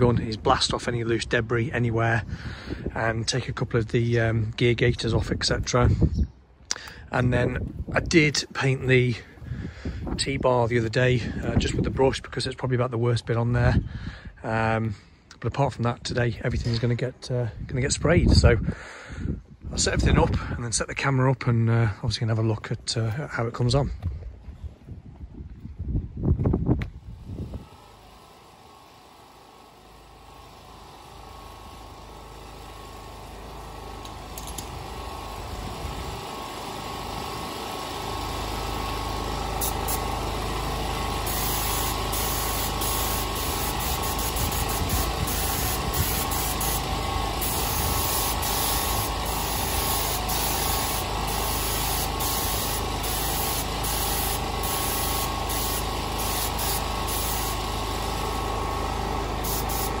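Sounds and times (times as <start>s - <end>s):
generator engine running: 27.1s - 60.0s
paint spray gun hissing: 27.4s - 60.0s.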